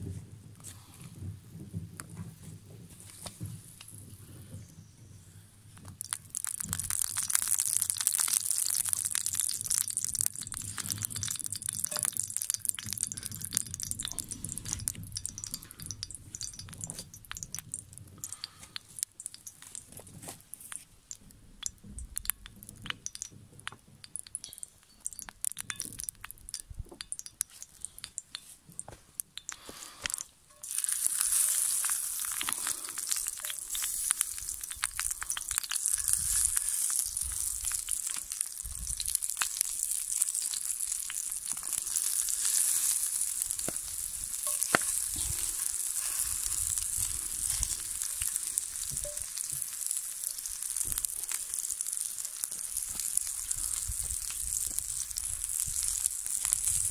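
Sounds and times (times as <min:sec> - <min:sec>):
wood fire crackling: 0:01.6 - 0:56.9
hot oil sizzling in skillet: 0:05.8 - 0:56.9.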